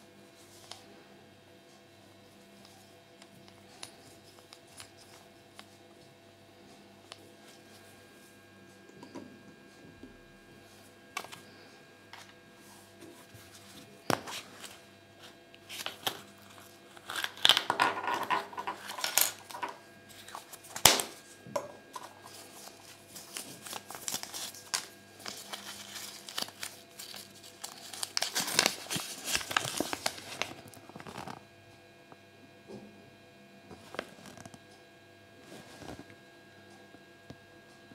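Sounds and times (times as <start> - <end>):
foil wrapper crinkling: 15.6 - 17.7, 22.0 - 31.4.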